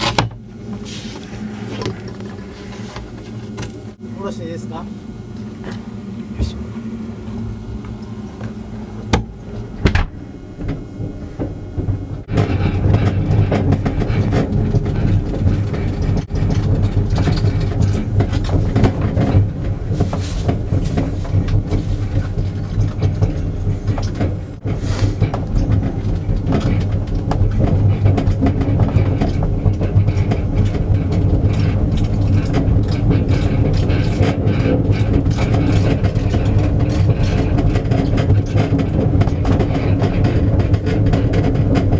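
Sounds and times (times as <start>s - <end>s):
cart wheels rumbling on asphalt: 10.5s - 41.9s
cart rattling and clicking: 10.6s - 41.9s.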